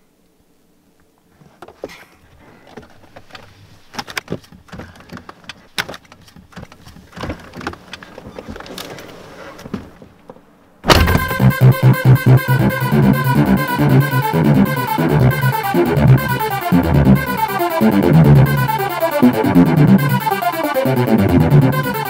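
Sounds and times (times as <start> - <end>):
clicks and rustles in car: 1.4 - 11.3
car door opening: 10.9 - 11.5
loud electronic music: 10.9 - 22.0.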